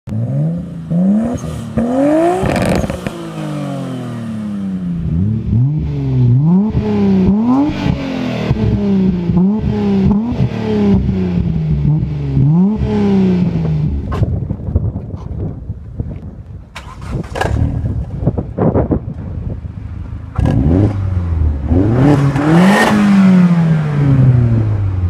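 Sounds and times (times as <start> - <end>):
car engine revving: 0.1 - 14.3, 20.2 - 25.0
exhaust crackling pops: 13.6 - 19.3.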